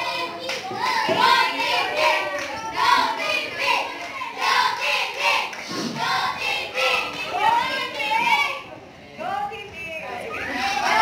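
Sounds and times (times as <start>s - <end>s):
children singing and calling out: 0.0s - 8.7s, 10.2s - 11.0s.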